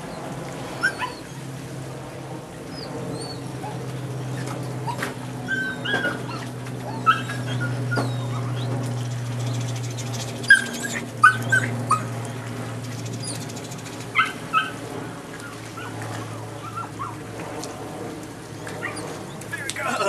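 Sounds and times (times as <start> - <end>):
steady low hum: 0.0 - 20.0
puppy whining and yipping: 0.8 - 1.4, 4.8 - 8.7, 10.4 - 12.2, 14.1 - 14.8, 16.6 - 17.2, 18.8 - 19.1.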